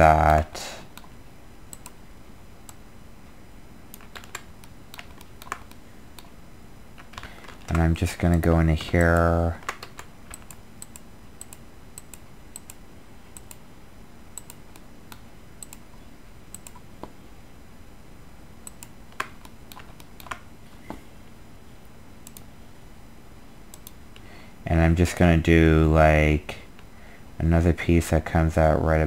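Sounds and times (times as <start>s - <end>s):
faint steady hiss: 0.0s - 29.0s
computer mouse clicks: 0.3s - 2.0s, 3.9s - 6.3s, 7.0s - 12.8s, 13.4s - 13.6s, 14.4s - 15.8s, 16.5s - 17.1s, 18.6s - 20.4s, 22.2s - 22.5s, 23.7s - 24.3s
computer keyboard clicks: 3.9s - 6.3s, 7.0s - 12.8s, 18.7s - 20.4s.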